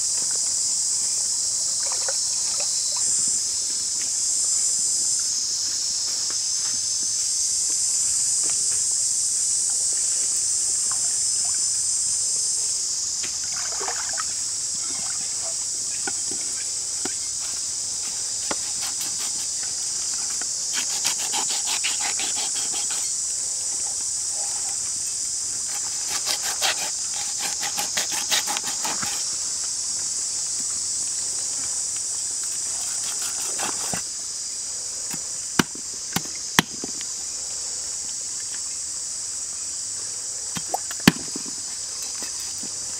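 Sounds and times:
high-pitched insect chorus: 0:00.0 - 0:42.9
knife rasping on fish: 0:20.7 - 0:23.1, 0:25.7 - 0:29.3, 0:32.8 - 0:34.0.

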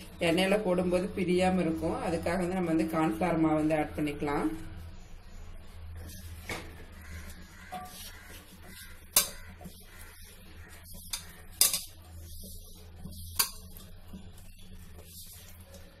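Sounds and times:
hand mixing fish in a bowl: 0:06.0 - 0:16.0.

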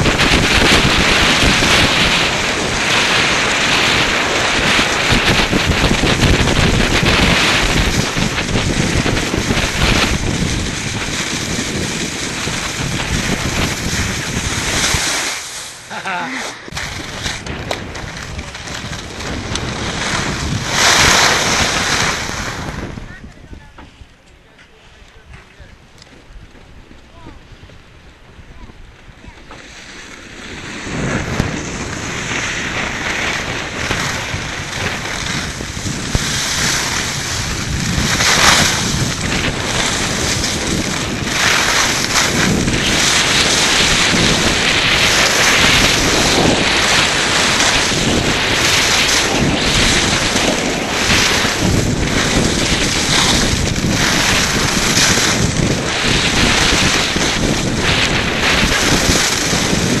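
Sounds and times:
skis scraping over crusty snow: 0:00.0 - 1:00.0
wind buffeting microphone: 0:00.0 - 1:00.0.

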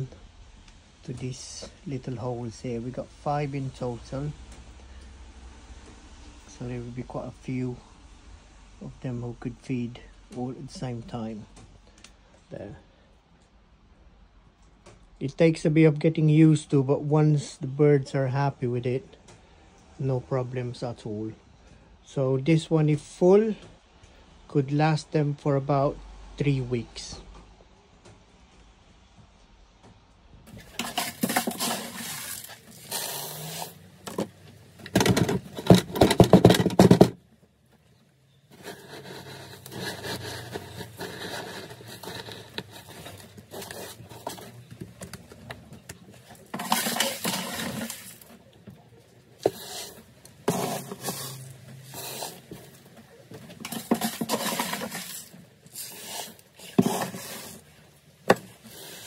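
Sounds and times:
grain rattling in wooden feeder: 0:30.5 - 0:37.2, 0:38.5 - 0:59.0.

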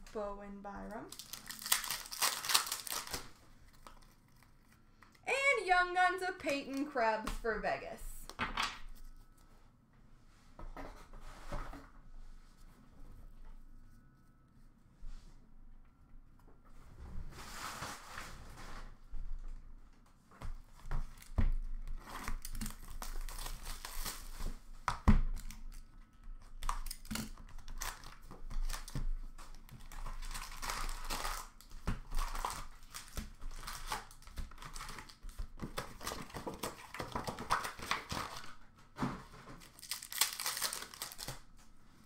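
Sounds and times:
plastic wrap tearing and crinkling: 0:00.9 - 0:05.2, 0:21.0 - 0:38.6, 0:39.6 - 0:41.6
foil packs rustling: 0:01.0 - 0:04.4, 0:22.0 - 0:24.6, 0:29.6 - 0:38.6, 0:39.2 - 0:41.5.

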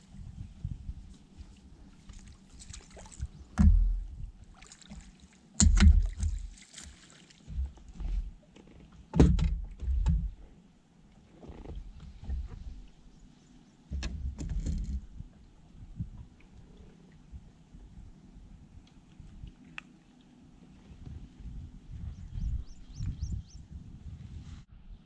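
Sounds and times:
hollow thumps on boat deck: 0:03.5 - 0:04.2, 0:05.6 - 0:06.5, 0:07.5 - 0:10.4.

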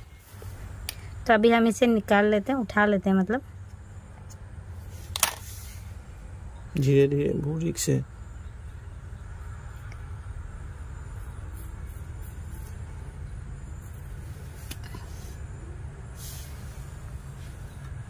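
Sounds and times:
brief hiss: 0:16.1 - 0:17.7.

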